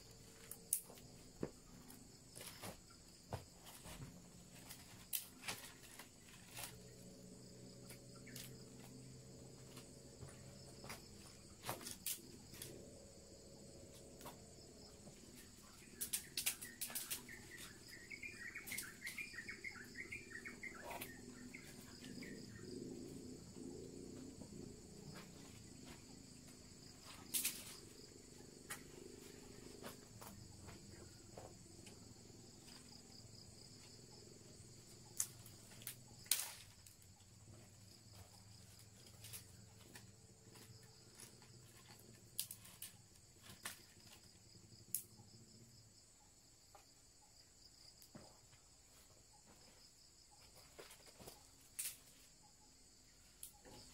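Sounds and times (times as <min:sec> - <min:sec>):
crickets and insects chirping: 0:00.0 - 0:53.9
sharp snaps and cracks: 0:00.4 - 0:01.1, 0:04.6 - 0:07.0, 0:07.9 - 0:08.9, 0:11.6 - 0:12.8, 0:15.8 - 0:17.8, 0:27.0 - 0:27.9, 0:35.1 - 0:37.1, 0:39.0 - 0:45.1, 0:51.7 - 0:52.1.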